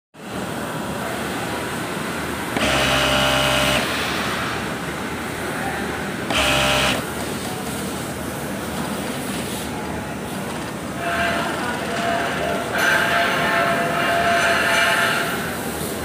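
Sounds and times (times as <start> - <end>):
steady background noise: 0.2 - 16.0
sewing machine stitching: 2.6 - 4.0, 6.3 - 7.1.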